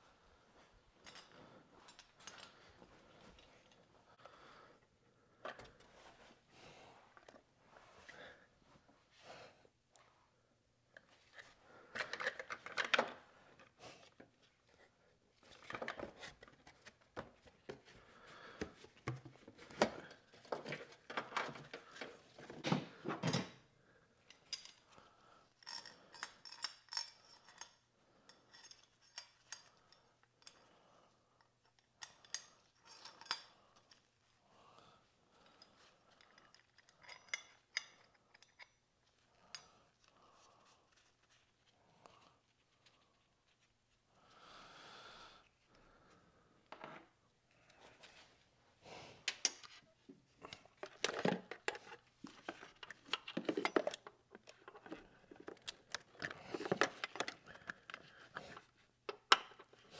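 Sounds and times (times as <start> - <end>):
hard objects knocking and clinking: 50.8 - 58.1.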